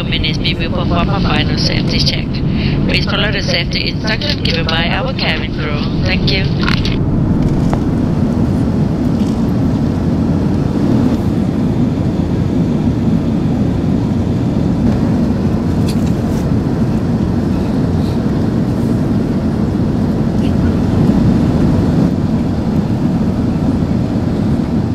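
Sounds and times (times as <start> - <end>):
aircraft cabin engine roar: 0.0 - 24.9.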